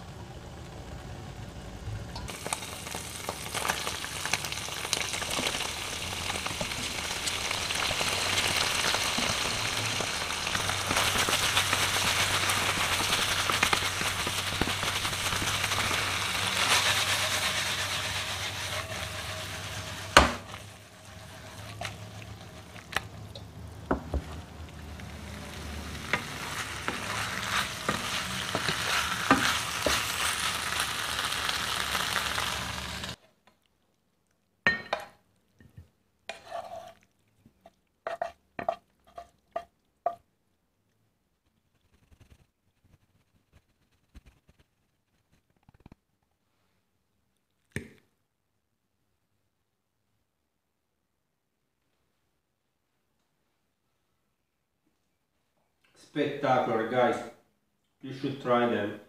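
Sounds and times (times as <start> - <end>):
pasta sizzling in frying pan: 0.1 - 33.2.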